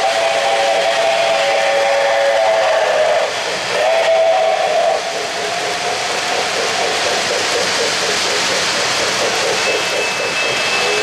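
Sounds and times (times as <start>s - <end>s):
model train whistle blasts: 0.0s - 5.0s
model trains rumbling on track: 0.0s - 11.0s.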